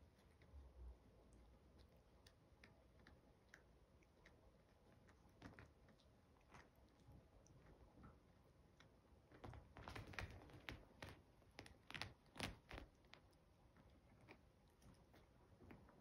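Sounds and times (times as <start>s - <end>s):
puppies' claws clicking and tapping: 2.6s - 7.0s, 9.3s - 16.0s.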